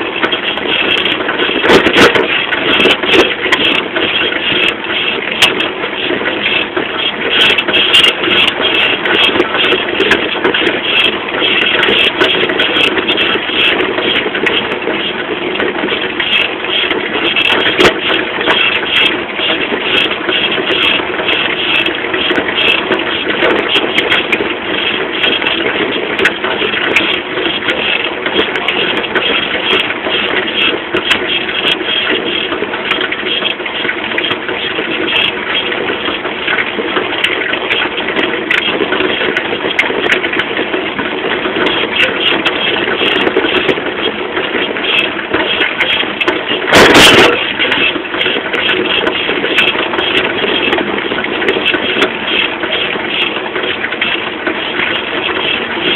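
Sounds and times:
moped engine running: 0.0s - 55.9s
loud burst of noise: 45.9s - 50.8s.

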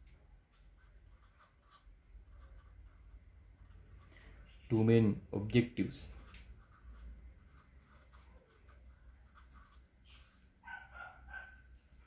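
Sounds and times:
marker scratching on paper: 0.5s - 4.1s, 6.0s - 11.4s.

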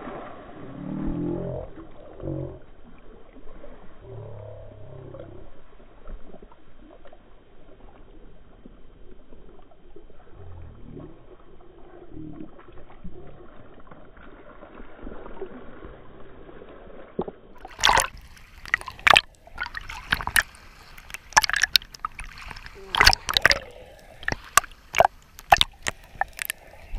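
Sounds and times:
waves splashing over camera: 0.0s - 1.4s, 17.5s - 26.9s
sea water sloshing and gurgling: 0.0s - 26.9s.

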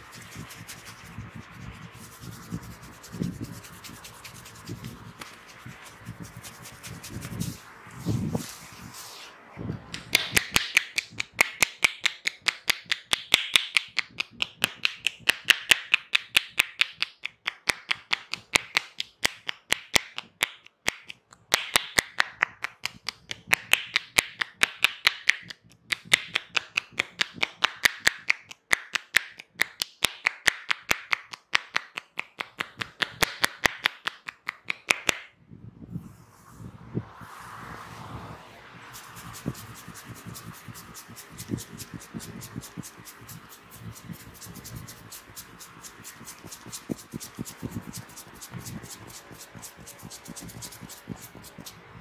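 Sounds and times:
hair rustling: 0.0s - 10.6s, 38.8s - 51.8s.

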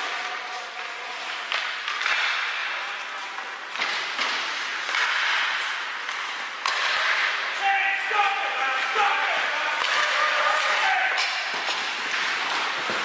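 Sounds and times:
skate blades scraping ice: 0.0s - 13.0s
hockey stick or puck knocks: 3.7s - 7.3s.

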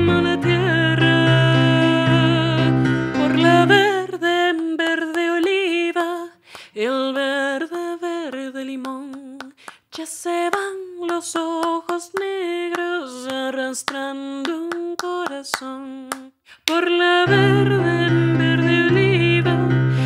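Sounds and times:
sustained keyboard chord: 0.0s - 4.2s
woman singing unaccompanied: 0.0s - 20.0s.

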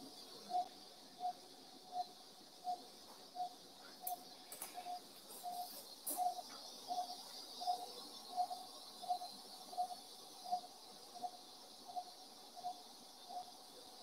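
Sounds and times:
patient monitor beeping: 0.4s - 9.2s.

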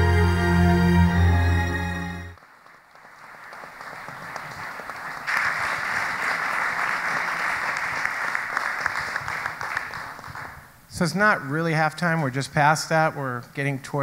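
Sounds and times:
audience applauding: 2.2s - 10.6s.

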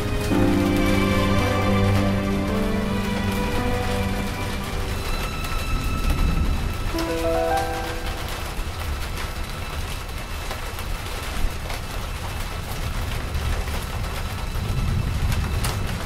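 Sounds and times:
held chord: 0.0s - 5.4s, 7.0s - 9.0s.

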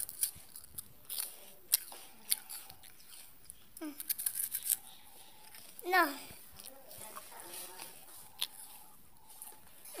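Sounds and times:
dog crunching a biscuit: 0.0s - 5.8s.

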